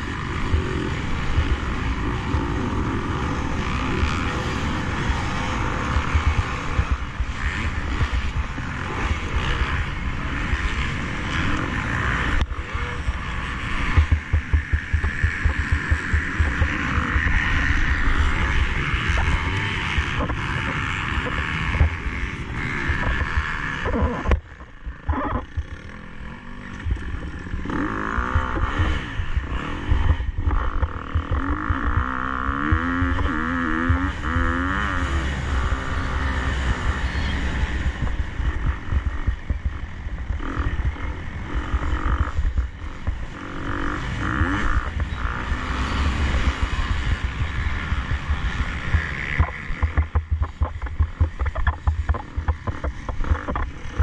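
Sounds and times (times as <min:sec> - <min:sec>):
motocross bike engine revving: 0:00.0 - 0:54.0
wind buffeting microphone: 0:26.5 - 0:54.0.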